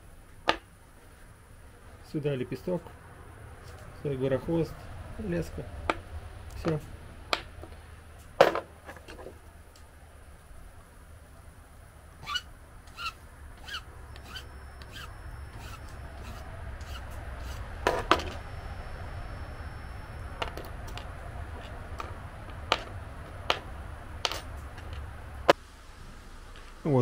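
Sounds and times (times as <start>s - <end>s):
file squeaking across lead: 12.2s - 17.7s.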